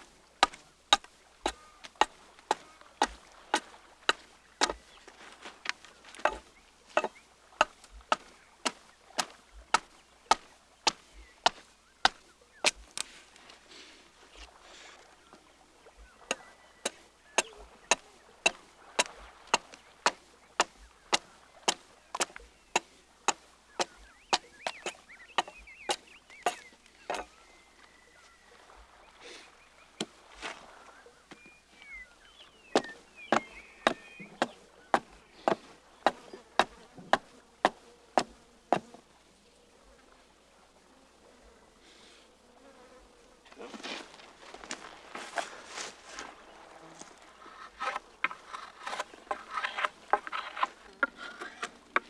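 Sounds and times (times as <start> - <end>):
faint birds chirping: 0.0 - 52.0
hatchet chopping wood: 0.4 - 4.8, 6.2 - 13.0, 16.3 - 27.3, 32.8 - 38.9.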